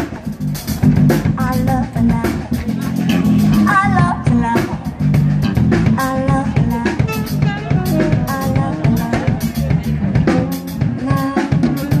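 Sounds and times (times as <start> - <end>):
drum kit beat: 0.0 - 12.0
electric bass: 0.0 - 12.0
electric guitar: 2.4 - 12.0
saxophone: 6.2 - 9.6.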